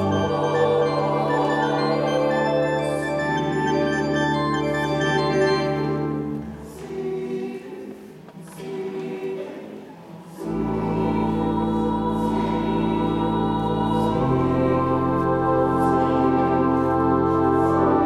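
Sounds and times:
organ with deep bass: 0.0s - 6.3s
choir singing: 0.0s - 18.0s.

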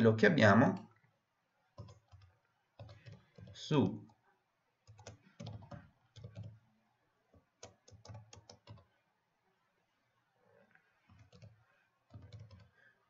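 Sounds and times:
faint typing on keyboard: 1.7s - 9.1s, 10.5s - 13.0s.

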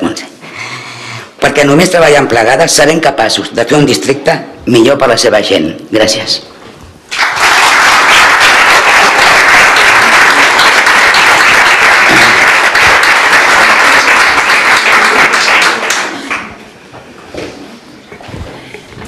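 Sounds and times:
audience applauding: 7.1s - 16.6s.

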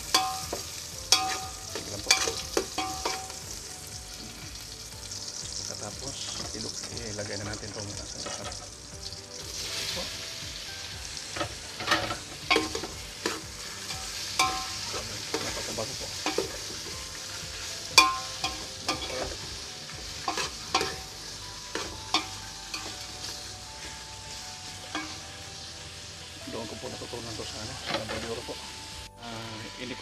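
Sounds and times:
meat sizzling in a metal pot: 0.0s - 30.0s
metal spatula clanking on a pot: 0.1s - 3.4s, 11.4s - 15.6s, 16.2s - 16.7s, 18.0s - 19.4s, 20.2s - 21.1s.

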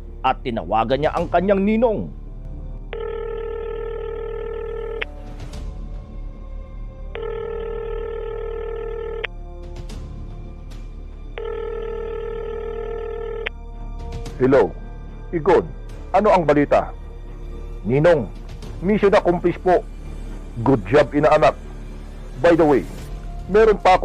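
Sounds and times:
quiet background music: 0.0s - 24.0s
telephone ringback tone: 2.9s - 5.1s, 7.2s - 9.3s, 11.4s - 13.5s.

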